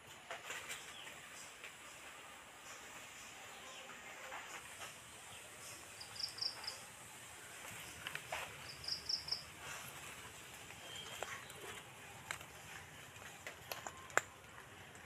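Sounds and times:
faint footsteps on leaves: 7.4s - 15.0s.

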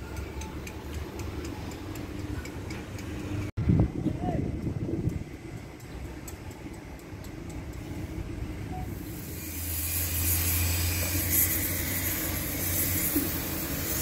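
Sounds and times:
truck engine idling with hiss: 5.1s - 14.0s.

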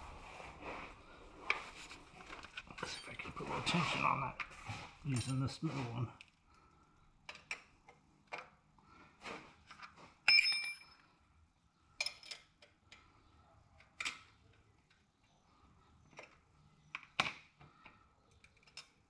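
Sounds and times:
ringing metal clink: 10.3s - 11.0s.

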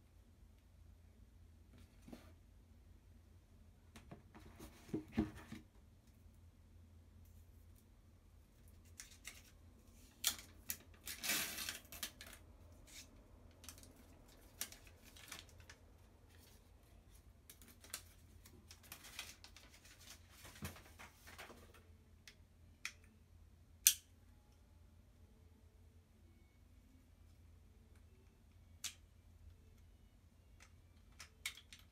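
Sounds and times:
plastic film crinkling: 13.6s - 15.8s, 16.4s - 21.7s.

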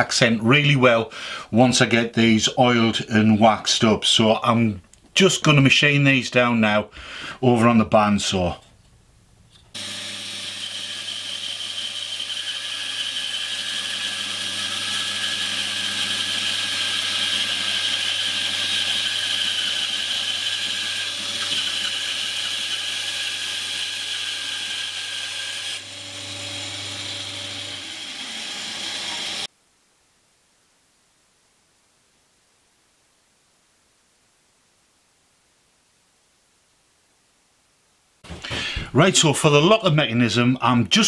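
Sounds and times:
bandsaw cutting wood: 9.7s - 29.5s.

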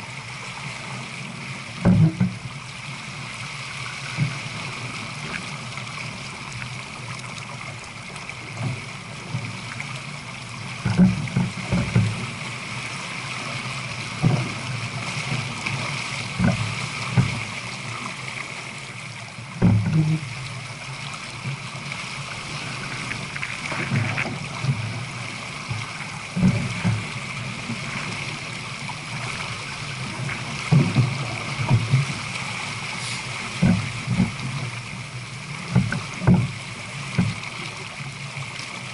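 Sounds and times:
water rushing along boat hull: 0.0s - 38.9s.

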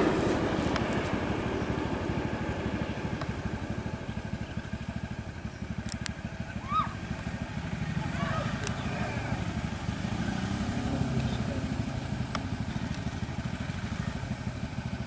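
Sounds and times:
small engine idling: 0.0s - 15.0s
sharp clicks: 5.8s - 6.2s, 8.6s - 8.8s.

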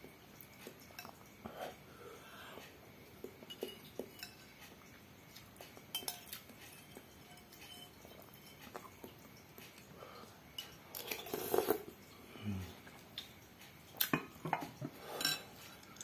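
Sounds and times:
metal spoon clinking on glass bowl: 3.4s - 4.5s, 5.9s - 8.8s.

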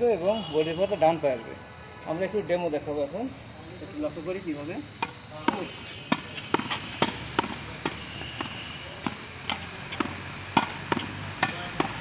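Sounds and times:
ball hitting wall: 5.0s - 12.0s
racket hitting tennis ball: 5.0s - 12.0s.

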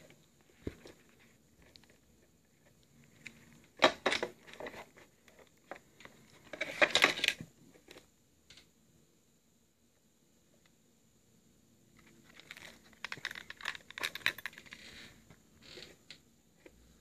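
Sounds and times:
leather wallet clicks and rustles: 12.0s - 14.8s.

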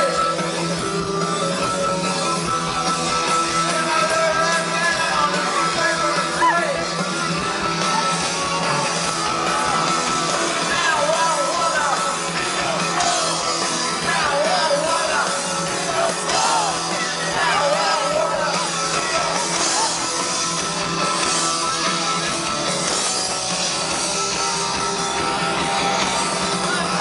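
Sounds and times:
punk rock band playing: 0.0s - 27.0s
person singing and yelling: 3.6s - 6.9s, 10.5s - 20.2s.

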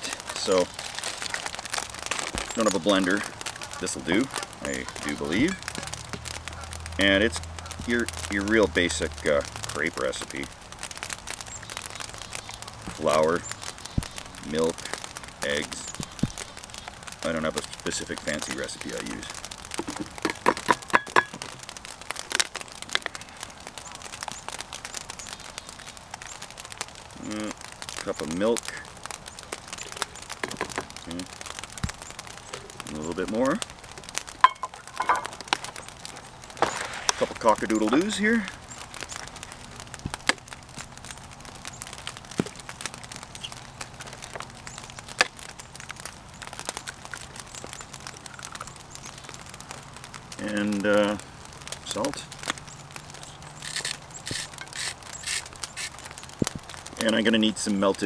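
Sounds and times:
eggs cracking: 0.0s - 24.8s, 26.7s - 57.2s
packaging crinkling: 0.0s - 57.0s
small clicks and rustling: 9.5s - 58.0s
utensils clinking: 34.4s - 35.4s.

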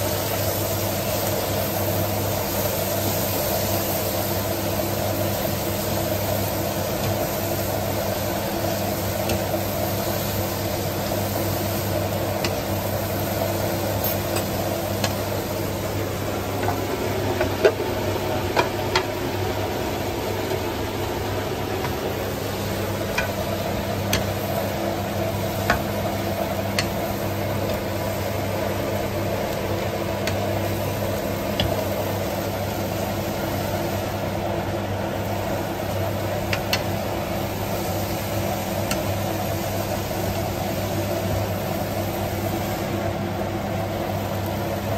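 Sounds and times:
food sizzling in a wok: 0.0s - 44.9s
spatula clicking against pan: 26.7s - 27.0s.

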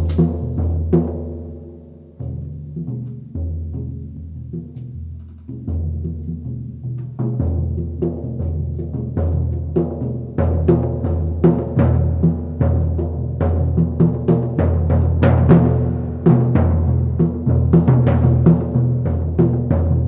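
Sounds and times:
drum and cymbal hits: 0.0s - 4.9s.

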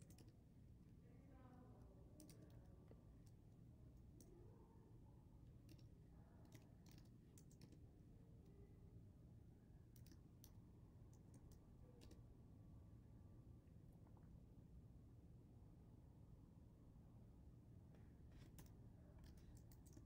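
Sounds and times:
keyboard typing: 0.0s - 0.4s, 6.5s - 7.8s, 18.4s - 20.0s
low steady hum: 0.0s - 20.0s.

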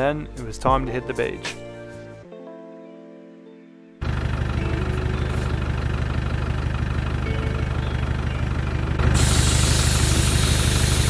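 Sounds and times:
diesel engine idling: 4.0s - 11.0s
air hissing from tyre valve: 9.0s - 11.0s.

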